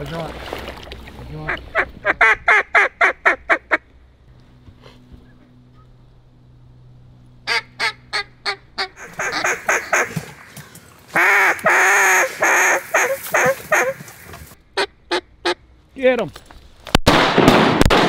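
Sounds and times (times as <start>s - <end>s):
duck call quacks: 1.5s - 3.8s, 7.5s - 10.5s, 11.1s - 14.2s, 14.8s - 15.6s.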